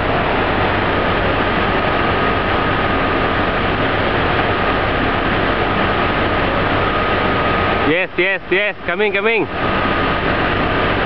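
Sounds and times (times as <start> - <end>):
car engine under load: 0.0 - 11.0
faint steady whine: 0.0 - 11.0.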